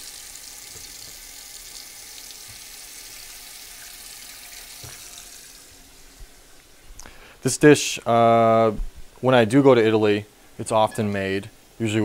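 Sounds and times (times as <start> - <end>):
faucet water running into pot: 0.0 - 6.2.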